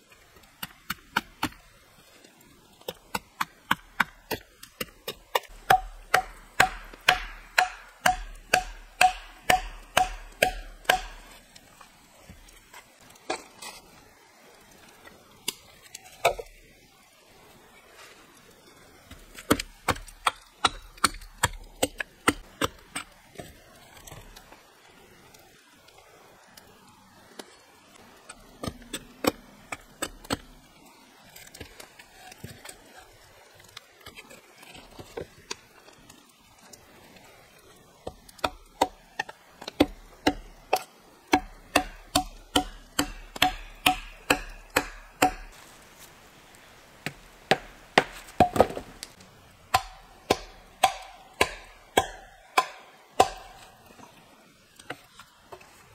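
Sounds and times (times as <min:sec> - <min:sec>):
hand tool striking wood: 0:03.1 - 0:11.4, 0:38.0 - 0:45.6, 0:47.0 - 0:49.0, 0:49.7 - 0:53.8.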